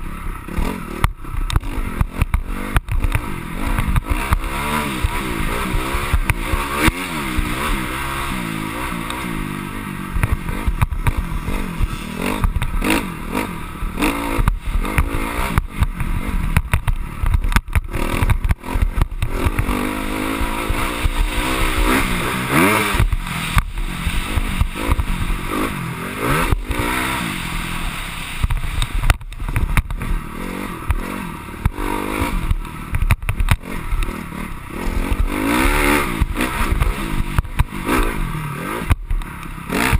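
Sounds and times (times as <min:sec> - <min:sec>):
dirt bike engine revving: 0:00.0 - 0:39.9
clatter and knocks over bumps: 0:14.4 - 0:22.2, 0:28.4 - 0:30.2, 0:30.8 - 0:34.2.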